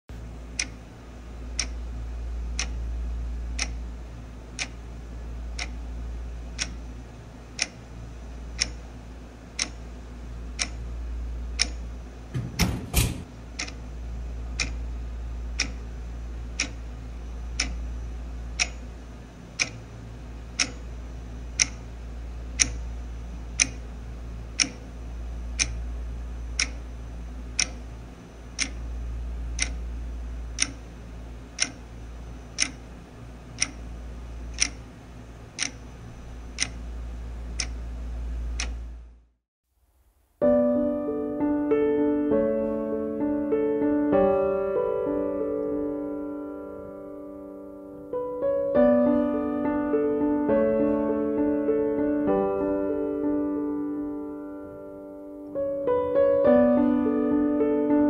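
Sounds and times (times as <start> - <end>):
clock ticking: 0.5 - 0.8, 1.5 - 1.8, 2.6 - 2.8, 3.5 - 3.8, 4.6 - 4.8, 5.6 - 5.8, 6.5 - 6.8, 7.6 - 7.8, 8.5 - 8.9, 9.6 - 9.8, 10.5 - 10.8, 11.6 - 13.9, 14.6 - 14.8, 15.6 - 15.9, 16.6 - 16.8, 17.5 - 17.8, 18.6 - 18.9, 19.6 - 19.8, 20.5 - 20.9, 21.6 - 21.9, 22.6 - 22.9, 23.6 - 23.9, 24.6 - 24.9, 25.6 - 25.8, 26.6 - 26.8, 27.5 - 27.8, 28.5 - 28.8, 29.6 - 29.8, 30.5 - 30.9, 31.6 - 31.9, 32.5 - 32.9, 33.5 - 33.9, 34.5 - 34.9, 35.6 - 35.9, 36.5 - 36.8, 37.6 - 37.8, 38.6 - 38.8.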